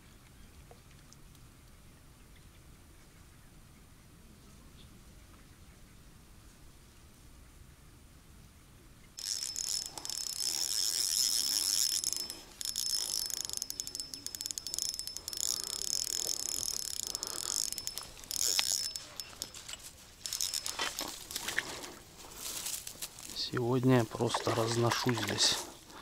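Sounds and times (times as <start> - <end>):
fishing reel whirring: 9.2 - 22.9.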